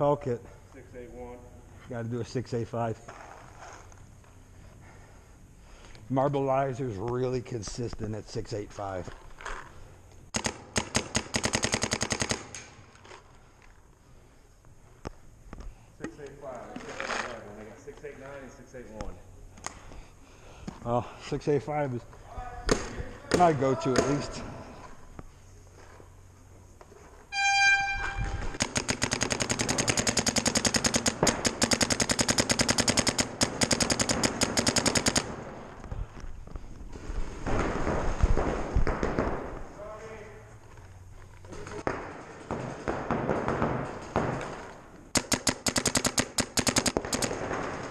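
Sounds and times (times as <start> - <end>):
paintball marker rapid shots: 10.3 - 12.8, 28.3 - 35.5, 41.8 - 47.9
short horn blast: 27.3 - 28.4.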